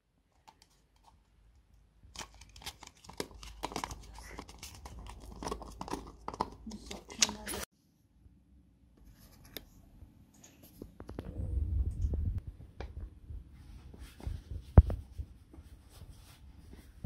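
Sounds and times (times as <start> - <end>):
fingers rubbing and tapping plastic lid: 3.0 - 7.4.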